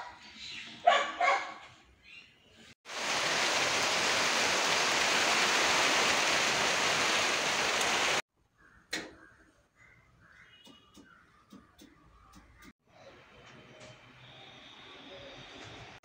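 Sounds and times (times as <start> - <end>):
heavy rain falling: 2.9 - 8.2.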